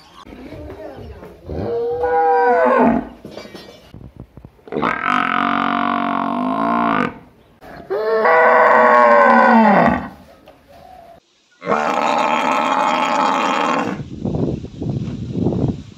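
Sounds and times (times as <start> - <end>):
cow mooing: 4.7 - 7.2.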